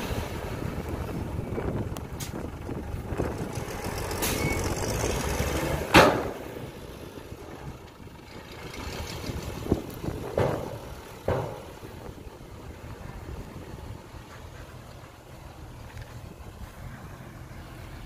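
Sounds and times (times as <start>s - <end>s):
diesel truck engine running: 0.0s - 18.0s.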